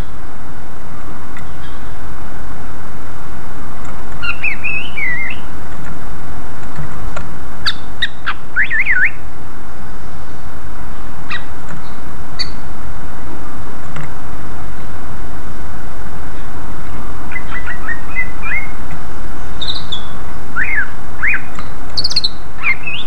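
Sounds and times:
bird chip notes: 0:03.8 - 0:06.0, 0:06.6 - 0:09.3, 0:10.0 - 0:12.8, 0:16.2 - 0:23.0
bird warbling whistled song: 0:04.2 - 0:05.5, 0:07.6 - 0:09.2, 0:11.3 - 0:12.6, 0:17.3 - 0:18.7, 0:19.6 - 0:23.0.

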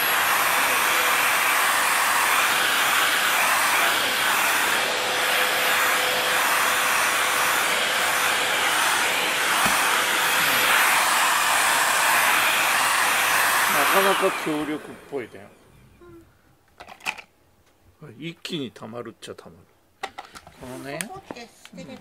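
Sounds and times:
vacuum cleaner running: 0:00.0 - 0:15.4.

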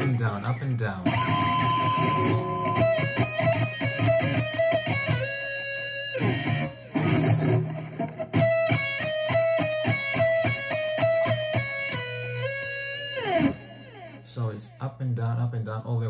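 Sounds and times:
electric guitar metal lick: 0:00.0 - 0:14.4.

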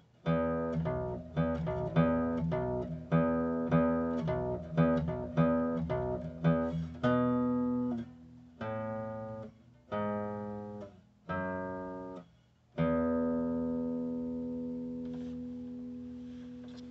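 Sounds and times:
bass guitar plucked notes: 0:00.3 - 0:12.2.

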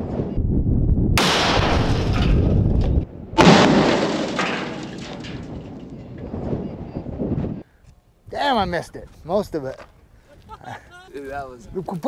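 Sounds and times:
combustion cannon booms: 0:01.1 - 0:06.6.

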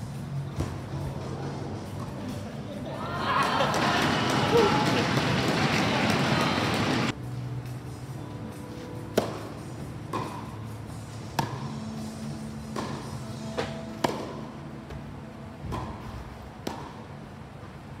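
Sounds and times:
tennis ball bouncing: 0:09.1 - 0:15.0, 0:15.6 - 0:17.1
tennis ball hit by racquets: 0:09.1 - 0:15.0, 0:15.6 - 0:17.1.

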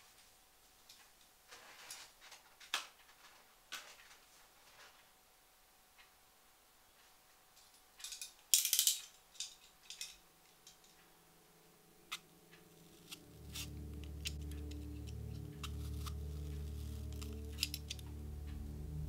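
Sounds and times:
low music drone: 0:11.3 - 0:19.0
knife blade clicking and scraping: 0:12.9 - 0:18.0.

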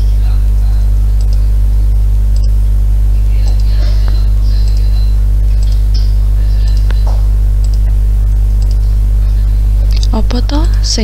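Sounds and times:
electrical mains hum: 0:00.0 - 0:11.0.

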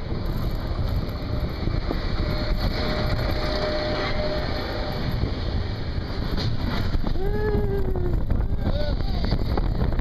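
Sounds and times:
roller coaster rumbling on track: 0:00.0 - 0:10.0.

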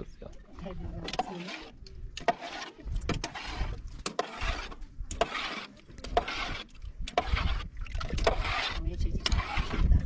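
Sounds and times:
liquid pouring and sloshing: 0:00.8 - 0:10.0.

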